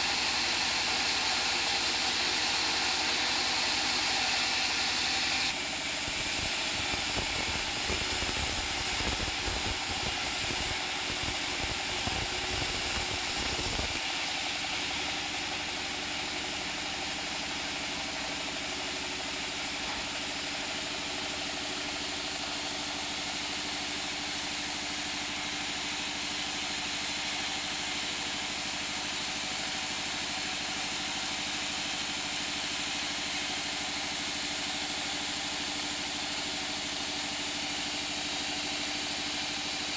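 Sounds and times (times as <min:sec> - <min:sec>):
band saw cutting wood: 0:00.0 - 0:14.4
saw engine droning: 0:00.0 - 0:15.6.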